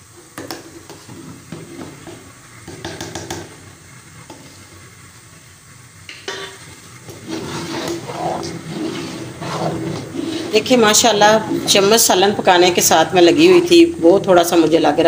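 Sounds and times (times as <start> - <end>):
metal spoon stirring in a steel pot: 6.3 - 12.2.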